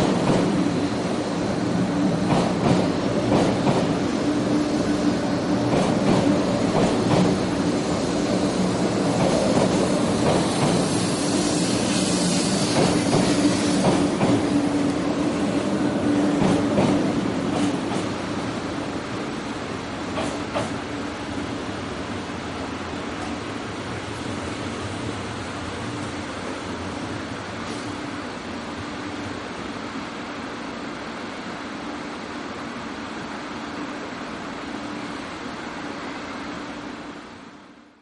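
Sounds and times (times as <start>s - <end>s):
wheels clacking on rails: 0.0s - 19.3s, 20.0s - 21.0s
train electric hum: 0.0s - 38.0s.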